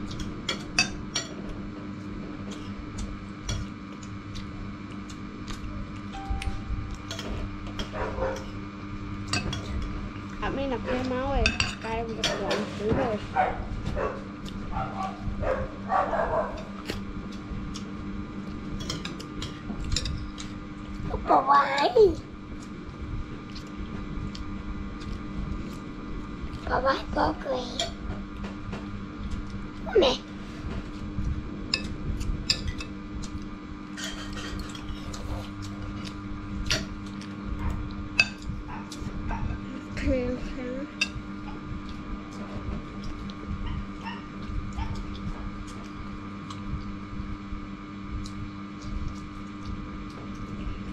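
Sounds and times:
steady low hum: 0.0 - 50.9
people talking: 10.4 - 13.3, 21.1 - 22.2, 26.7 - 27.9, 29.9 - 30.2, 39.7 - 41.0.

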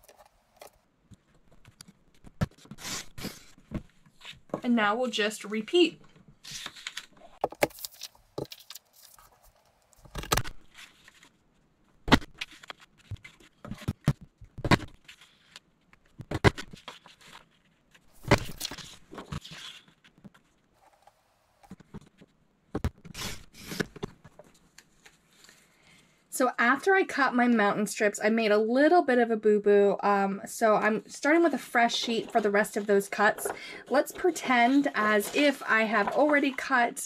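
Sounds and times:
paper scraping and rustling: 6.4 - 11.4, 12.4 - 14.0, 14.8 - 15.7, 16.6 - 21.1, 31.4 - 36.8.

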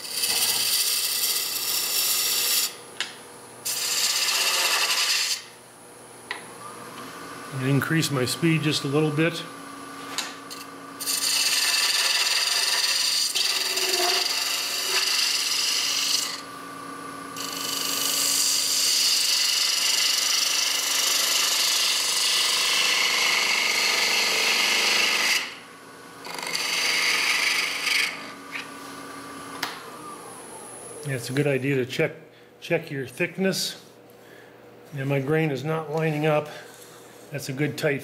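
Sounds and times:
gouge cutting spinning wood: 0.0 - 2.8, 3.6 - 5.5, 10.5 - 16.5, 17.4 - 25.6, 26.2 - 28.7
wood lathe motor hum: 0.0 - 5.6, 8.4 - 31.1.

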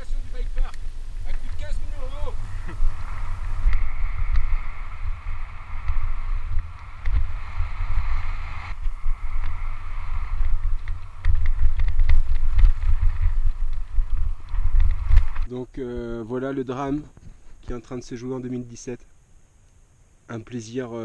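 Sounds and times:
steady high whirr: 0.0 - 15.5
wind buffeting microphone: 0.0 - 15.5
bike clicks and rattles: 8.8 - 15.5.

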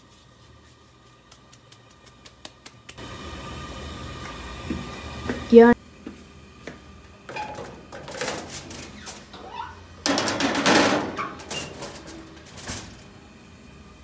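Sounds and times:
pan scraping onto oven rack: 7.3 - 13.0
oven door shutting: 7.3 - 13.2
metal pizza pan clattering: 10.1 - 12.9.

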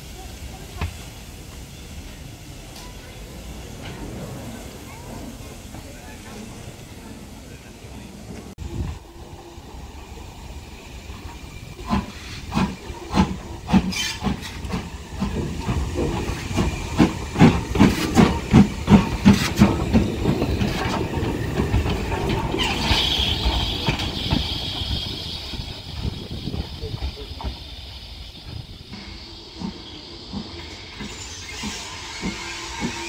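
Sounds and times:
steam hissing: 0.0 - 33.0.

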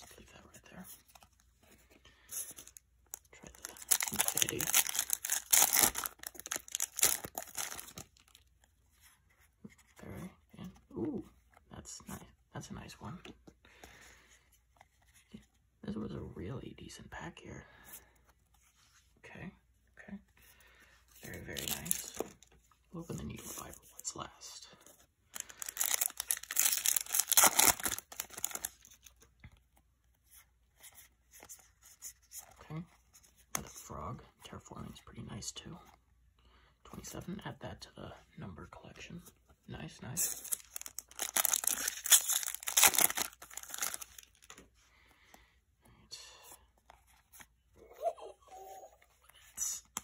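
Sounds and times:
foil wrapper crinkling: 3.5 - 8.3, 25.4 - 28.9, 40.3 - 44.5.

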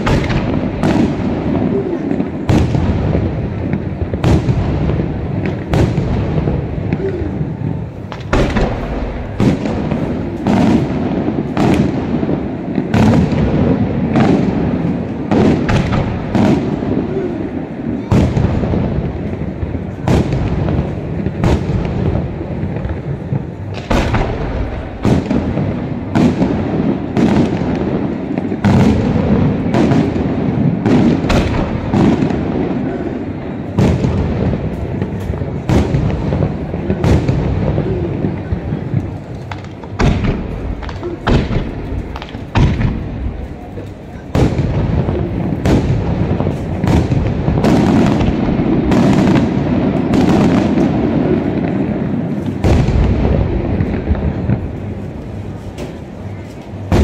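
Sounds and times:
firework shells bursting: 33.2 - 57.0.

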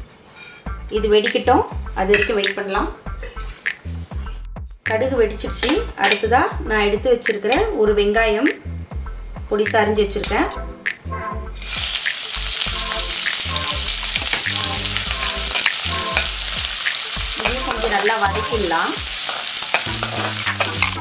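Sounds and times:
onions sizzling in hot oil: 11.6 - 21.0.

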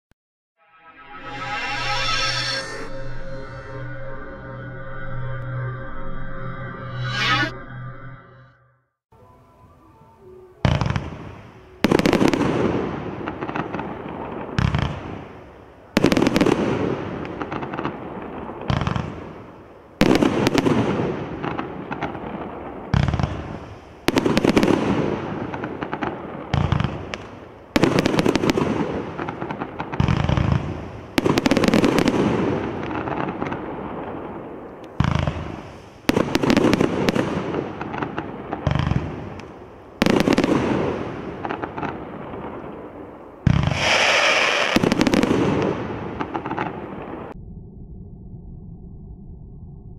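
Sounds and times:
firework crackle: 10.7 - 47.4.

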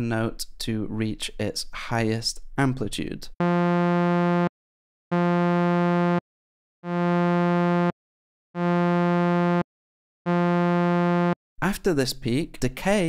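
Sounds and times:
synth repeating bright note: 3.4 - 4.5, 5.1 - 6.2, 6.8 - 7.9, 8.6 - 9.6, 10.3 - 11.4.

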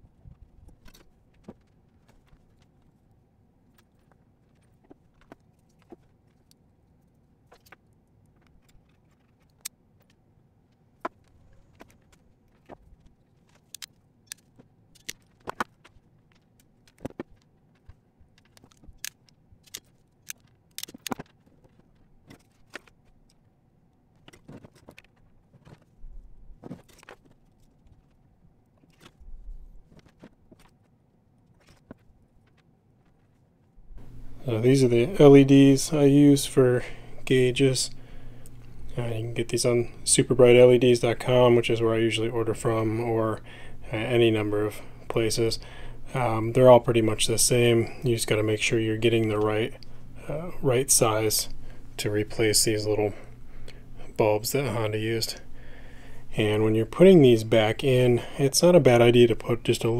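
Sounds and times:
small hard parts clicking: 7.5 - 23.4.

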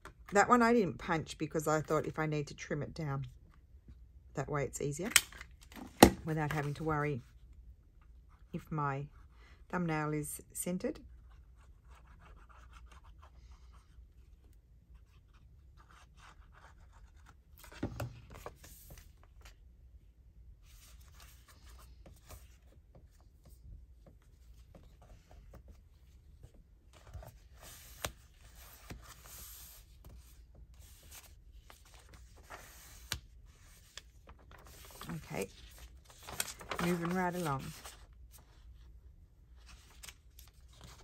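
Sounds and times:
paper pages rustling: 27.0 - 38.6, 39.6 - 41.0.

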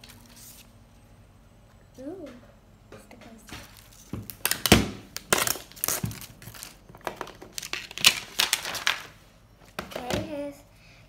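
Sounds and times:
plastic packaging crinkling: 3.6 - 9.2.

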